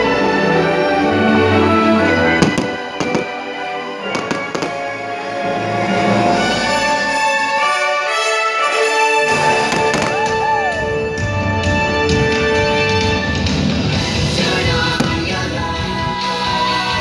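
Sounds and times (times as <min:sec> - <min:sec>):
loud orchestral music: 0:00.0 - 0:17.0
firework shells bursting: 0:02.4 - 0:05.0, 0:09.6 - 0:10.4, 0:15.0 - 0:15.6.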